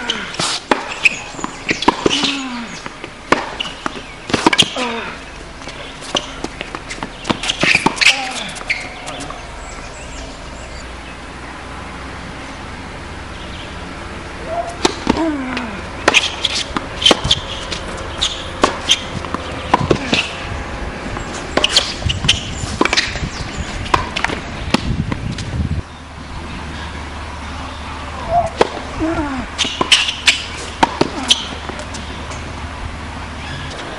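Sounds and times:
racket striking tennis ball: 0:00.2 - 0:05.0, 0:05.6 - 0:09.5, 0:14.5 - 0:20.5, 0:21.2 - 0:25.5, 0:28.2 - 0:29.0, 0:29.6 - 0:32.5
tennis ball bouncing: 0:00.4 - 0:10.6, 0:13.7 - 0:25.5, 0:28.2 - 0:32.7.

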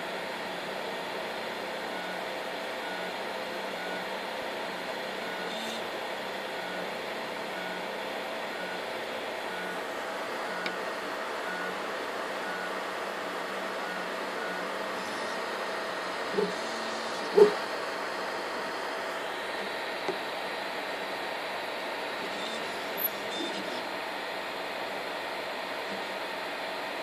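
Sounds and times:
stepper motor whines: 0:11.4 - 0:17.8, 0:18.4 - 0:24.4.

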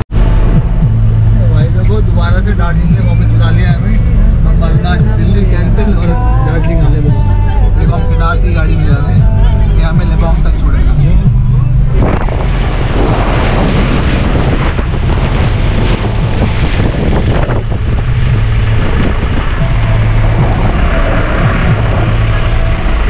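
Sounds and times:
road noise: 0:00.0 - 0:23.0
van engine hum: 0:00.0 - 0:23.0
wind on microphone: 0:10.9 - 0:23.0.

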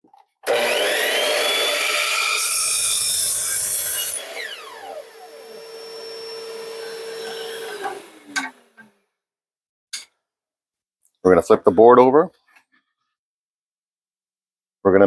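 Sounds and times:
miter saw cutting wood: 0:00.4 - 0:09.0.

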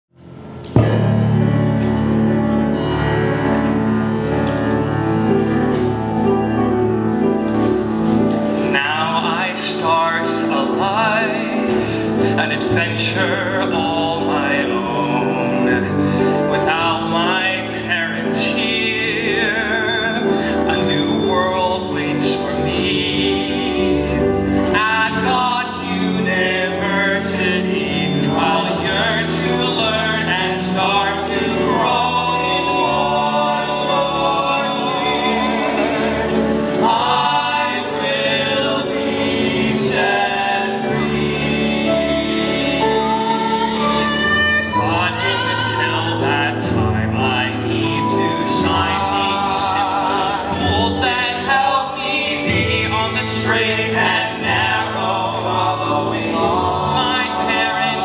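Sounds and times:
small band playing instrumental: 0:00.3 - 0:12.3
men singing: 0:08.6 - 0:58.0.

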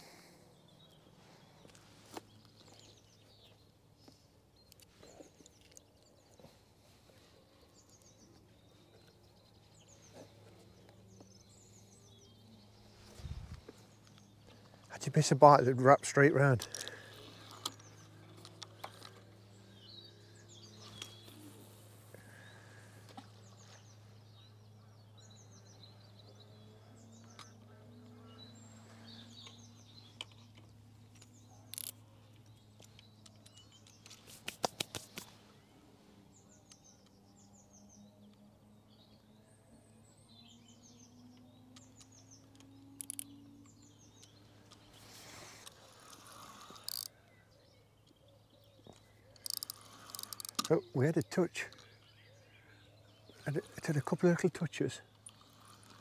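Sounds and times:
small birds chirping: 0:00.0 - 0:56.0
fishing tackle clicks: 0:16.6 - 0:19.2, 0:31.2 - 0:32.0, 0:41.8 - 0:43.8, 0:45.6 - 0:47.2, 0:48.9 - 0:50.8.

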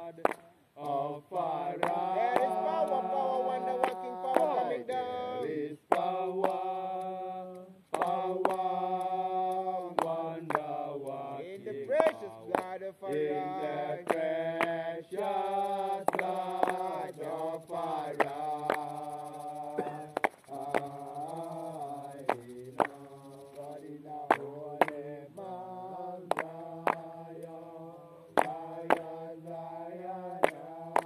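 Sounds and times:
voices chanting a hymn: 0:00.0 - 0:31.0
sharp percussive beats: 0:14.0 - 0:25.0.

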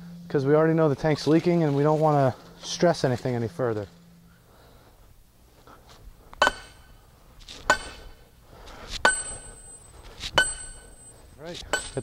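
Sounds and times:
sledgehammer striking steel bar: 0:06.4 - 0:07.0, 0:07.6 - 0:08.2, 0:08.9 - 0:12.0.

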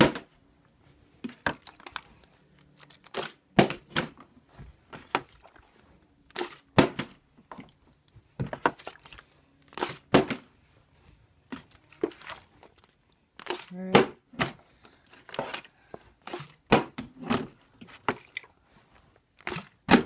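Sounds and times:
plastic bottle clattering: 0:08.4 - 0:09.0.

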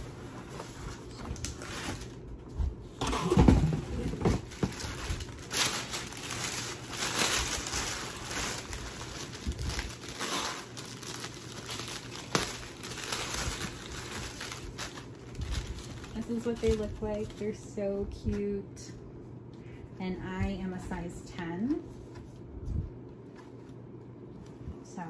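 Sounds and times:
paper and box crinkling: 0:00.0 - 0:02.2, 0:03.3 - 0:17.5.

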